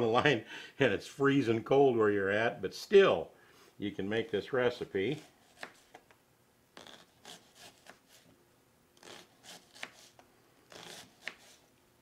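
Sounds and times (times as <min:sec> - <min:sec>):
knife slicing onion on cutting board: 0:05.1 - 0:06.0, 0:06.8 - 0:08.2, 0:09.0 - 0:11.6.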